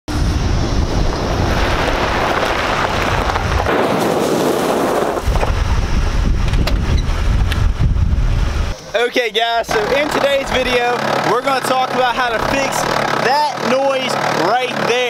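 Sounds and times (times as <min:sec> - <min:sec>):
wind buffeting microphone: 0:00.1 - 0:08.8.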